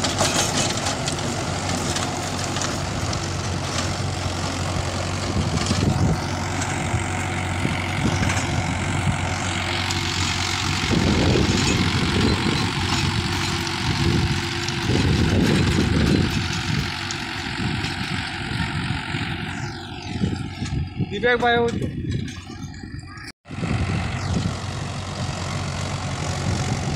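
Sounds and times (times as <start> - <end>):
rotavator churning soil: 0.0 - 20.9
tractor diesel engine running: 0.0 - 26.9.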